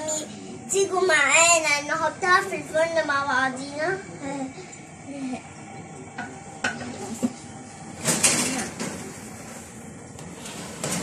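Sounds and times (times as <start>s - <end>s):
metal tray scraping oven rack: 10.4s - 11.0s.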